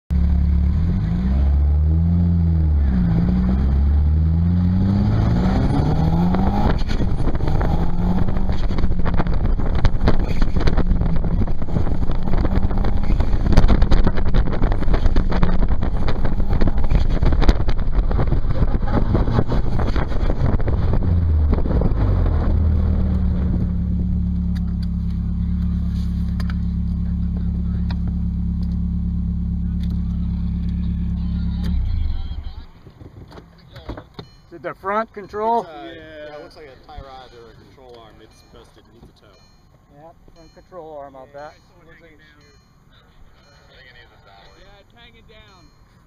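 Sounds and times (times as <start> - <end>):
car engine revving: 0.1 - 32.8
rushing wind and road noise: 2.9 - 24.8, 31.7 - 34.5
sharp knocks and crackles: 6.3 - 21.8.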